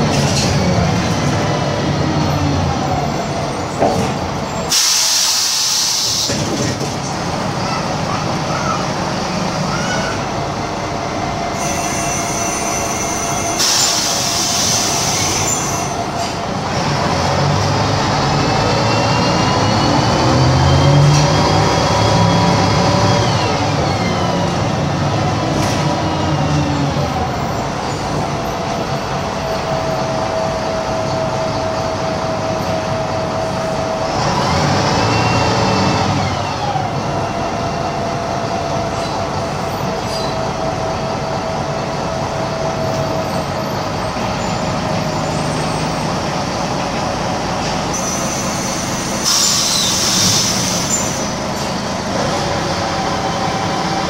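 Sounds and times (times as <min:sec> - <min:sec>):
bus engine and gearbox whine: 0:00.0 - 0:54.0
air hissing: 0:04.7 - 0:06.5, 0:11.6 - 0:16.0, 0:47.9 - 0:51.7.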